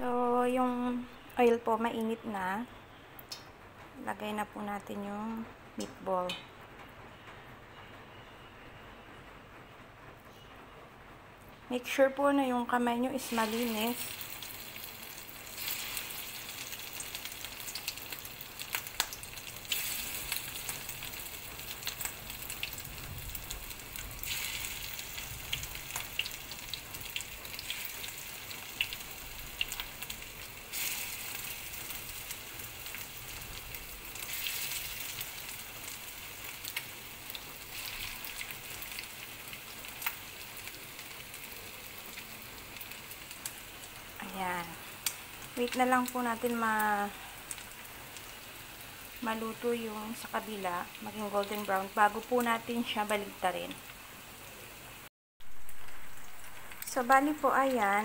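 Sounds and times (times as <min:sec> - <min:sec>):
meatballs sizzling in oil: 0:13.0 - 0:58.0.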